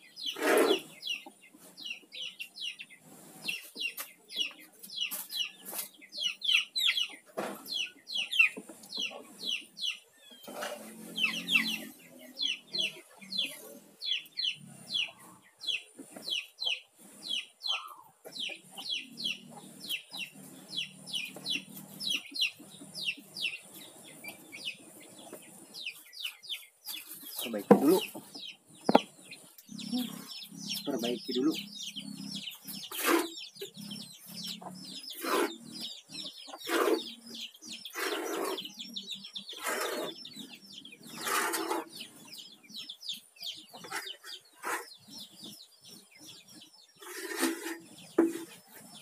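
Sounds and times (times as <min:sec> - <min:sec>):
chickens clucking: 0:00.0 - 0:49.0
chicks peeping: 0:00.0 - 0:49.0
knocks: 0:27.6 - 0:28.2.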